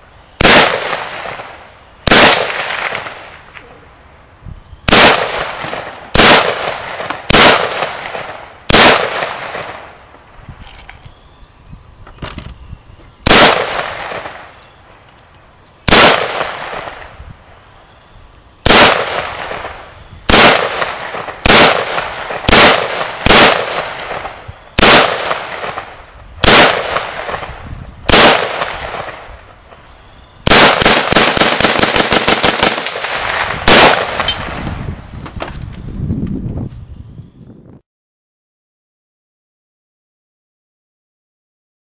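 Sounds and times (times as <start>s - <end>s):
rifle shots: 0.4s - 3.4s, 4.9s - 9.9s, 13.2s - 14.5s, 15.9s - 17.1s, 18.6s - 29.3s, 30.4s - 34.7s.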